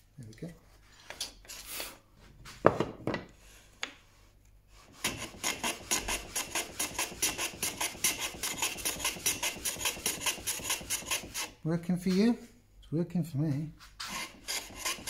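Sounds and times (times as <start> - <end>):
hand plane shaving strokes: 4.7 - 11.6, 14.0 - 15.0.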